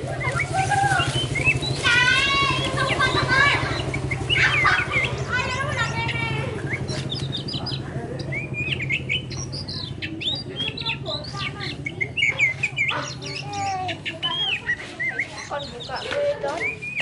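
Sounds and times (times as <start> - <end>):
bird singing: 0.0 - 17.0.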